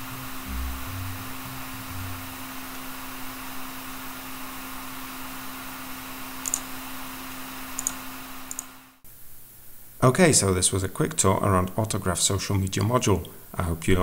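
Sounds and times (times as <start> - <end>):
low hum and hiss: 0.0 - 14.0
computer mouse click: 6.4 - 6.7, 7.8 - 8.8.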